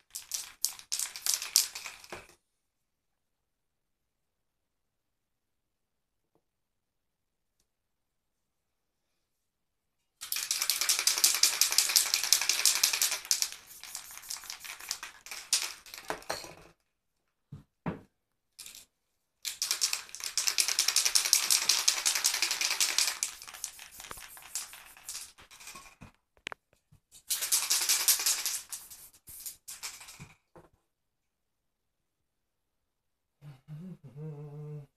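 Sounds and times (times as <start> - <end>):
spray paint can rattling: 0.0 - 2.3, 10.2 - 16.4, 18.6 - 18.8, 19.4 - 26.0, 27.2 - 30.4.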